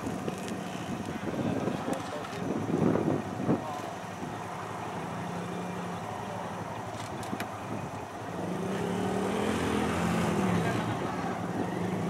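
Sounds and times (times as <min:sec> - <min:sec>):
vehicle engine idling: 0:00.0 - 0:09.4.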